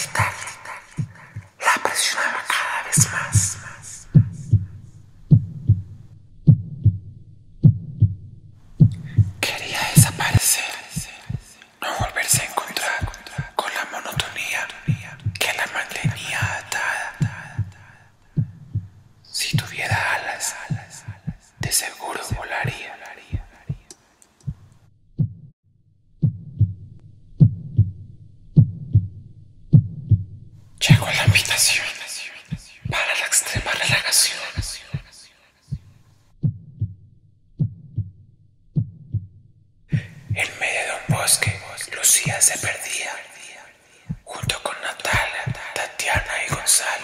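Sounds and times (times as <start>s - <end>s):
heartbeat double thumps: 0.0s - 1.6s, 3.0s - 10.4s, 11.0s - 25.5s, 26.2s - 31.6s, 32.5s - 35.1s, 35.7s - 42.7s, 44.1s - 46.6s
low hum: 3.0s - 10.4s, 24.5s - 31.4s.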